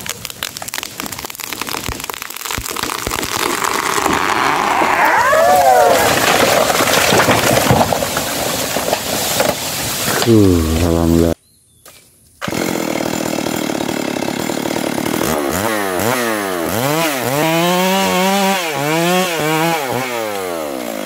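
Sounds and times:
tree crashing through foliage: 0:00.0 - 0:10.3
wood cracking: 0:00.0 - 0:11.3.

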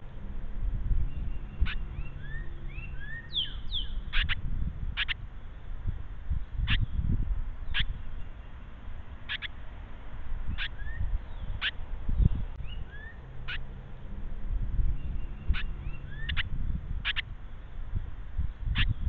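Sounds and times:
faint rising chirps: 0:01.0 - 0:04.1.

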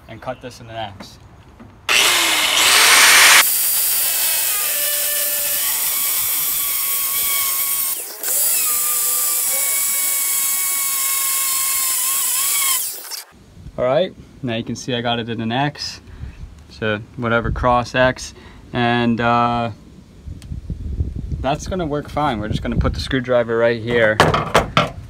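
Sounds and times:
angle grinder cutting metal: 0:01.9 - 0:13.3.

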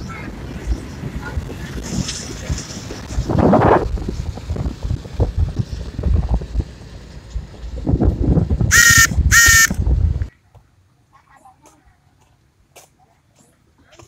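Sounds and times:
wind buffeting microphone: 0:00.0 - 0:10.3
vehicle horn honks: 0:08.7 - 0:09.8.

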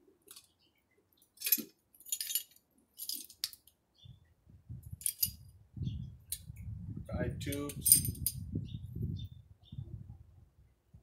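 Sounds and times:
metal bolts clinking: 0:01.4 - 0:03.7, 0:05.0 - 0:05.4, 0:07.5 - 0:08.4.

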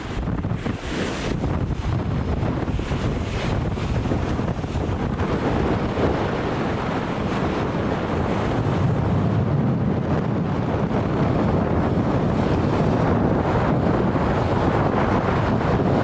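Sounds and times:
small waves breaking on beach: 0:00.0 - 0:09.1
gusty wind buffeting microphone: 0:00.0 - 0:16.0.

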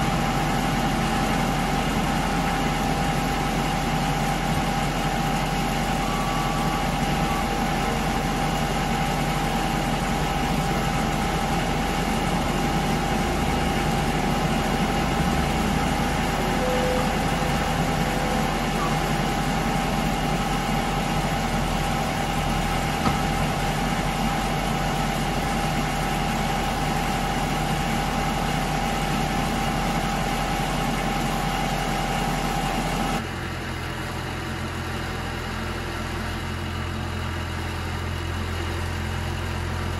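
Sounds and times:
diesel engine running with whine: 0:00.0 - 0:39.9.

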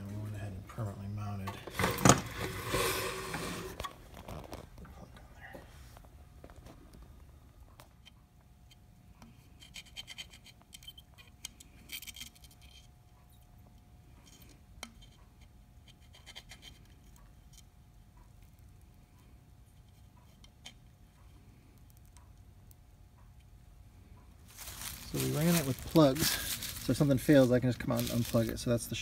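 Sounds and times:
flux crackling and sizzling: 0:24.5 - 0:29.0.

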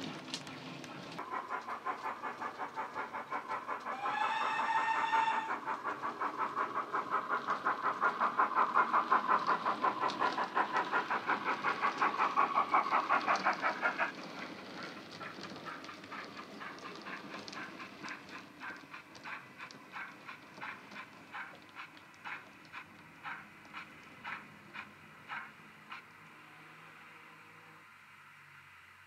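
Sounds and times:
model steam locomotive chuffs: 0:00.0 - 0:29.0
locomotive whistle: 0:03.1 - 0:06.0.

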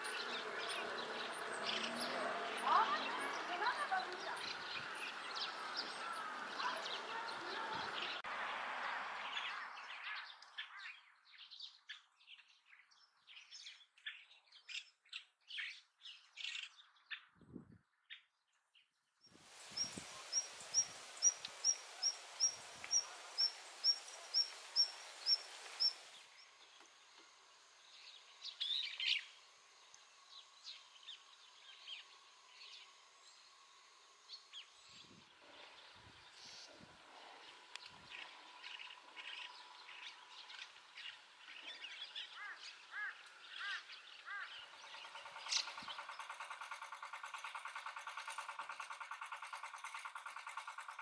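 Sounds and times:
birds chirping: 0:00.0 - 0:08.3, 0:18.1 - 0:51.0
water rushing: 0:19.4 - 0:26.3.

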